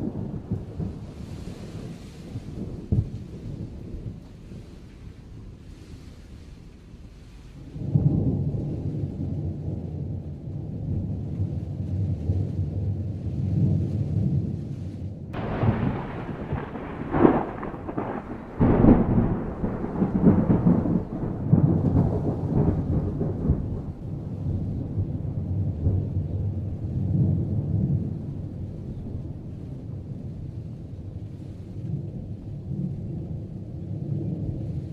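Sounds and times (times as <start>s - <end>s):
thunder cracks: 0.0s - 4.8s, 15.3s - 31.3s
thunder rumbling: 0.0s - 34.9s.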